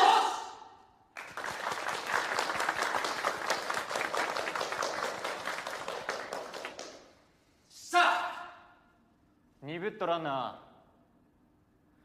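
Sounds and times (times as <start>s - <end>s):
group applauding: 1.1s - 7.2s.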